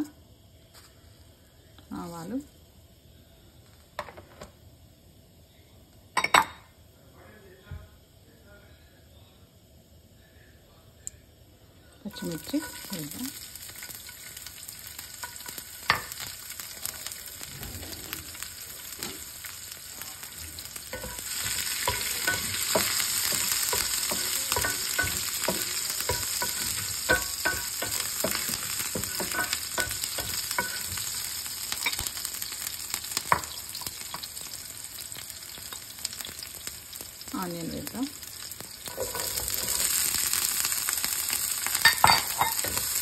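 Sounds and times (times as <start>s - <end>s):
spices sizzling in hot oil: 12.0s - 43.0s.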